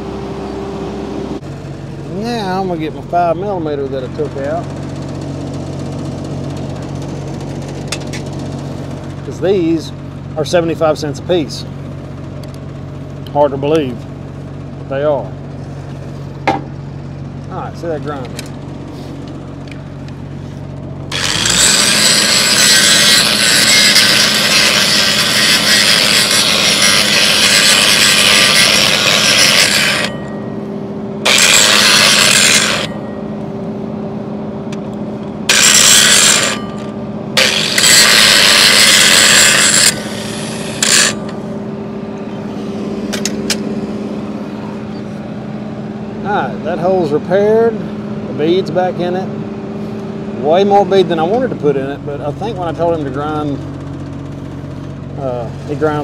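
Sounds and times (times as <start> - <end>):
angle grinder grinding metal: 21.0 - 30.4, 31.2 - 33.2, 35.4 - 41.6.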